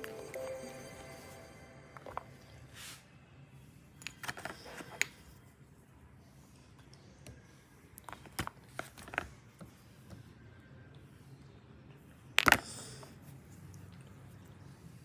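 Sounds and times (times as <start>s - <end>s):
small cases clicking and tapping: 12.4s - 12.7s.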